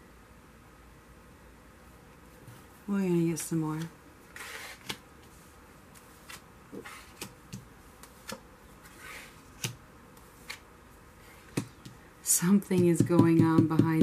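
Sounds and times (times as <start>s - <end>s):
cards tapping and sliding on cloth: 3.4s - 10.6s, 11.3s - 12.0s.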